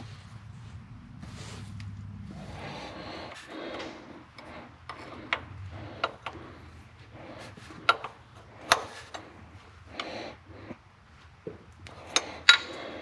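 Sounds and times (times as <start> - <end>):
tools tapping on metal: 11.9 - 13.0.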